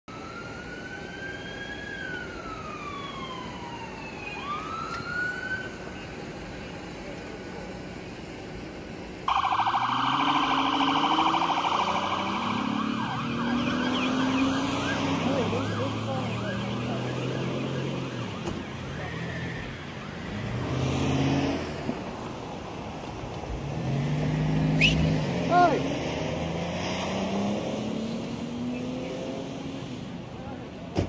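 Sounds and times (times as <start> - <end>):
wailing siren: 0.0 - 6.0, 9.3 - 20.9
fast-pulsing siren: 0.1 - 5.8, 9.3 - 20.0.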